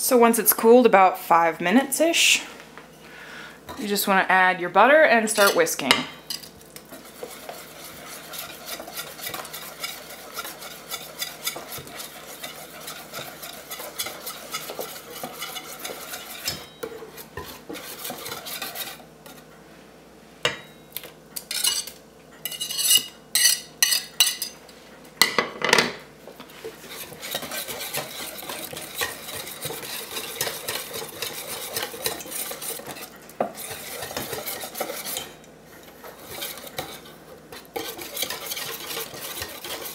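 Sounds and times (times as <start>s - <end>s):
whisk beating in metal bowl: 6.8s - 19.4s, 26.6s - 39.9s.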